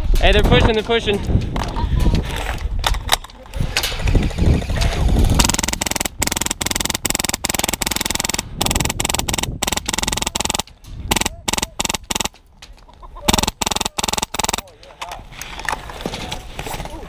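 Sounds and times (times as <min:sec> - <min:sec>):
electric gun firing bursts: 0:05.1 - 0:12.4, 0:13.3 - 0:14.7.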